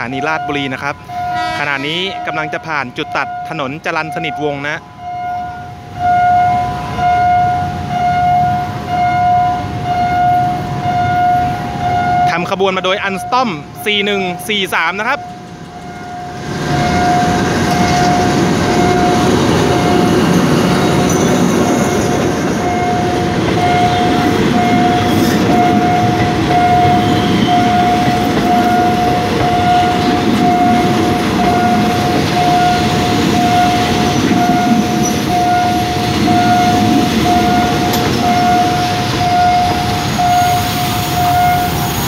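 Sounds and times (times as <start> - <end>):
level crossing warning alarm: 0.0 - 42.0
train wheels rumbling on rails: 13.6 - 42.0.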